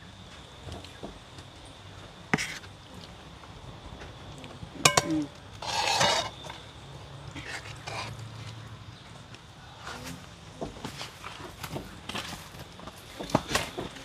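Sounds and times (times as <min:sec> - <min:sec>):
cookware clinking and knocking: 0:04.8 - 0:05.3
cookware scraping: 0:04.8 - 0:06.6.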